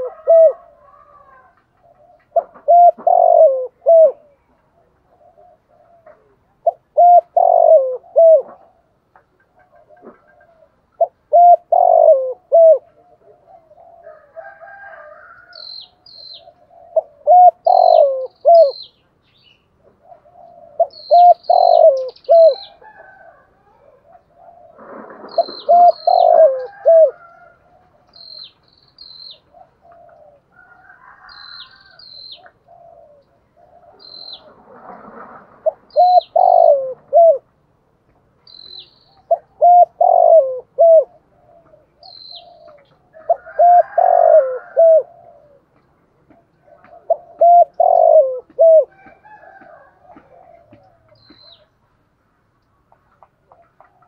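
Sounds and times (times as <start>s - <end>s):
dove cooing: 0.0s - 18.9s, 19.7s - 28.6s, 29.2s - 37.7s, 38.5s - 51.8s, 53.2s - 54.0s
small bird chirping: 15.6s - 16.6s, 17.4s - 19.7s, 28.1s - 29.5s, 31.3s - 32.6s, 33.8s - 34.5s, 38.4s - 39.5s, 42.0s - 43.0s, 51.1s - 51.7s.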